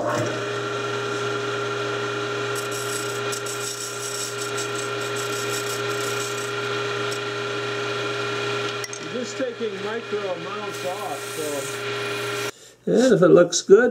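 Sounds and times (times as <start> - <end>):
lathe humming and whining: 0.0 - 12.5
hand tool scraping wood: 2.6 - 7.2, 8.7 - 12.5.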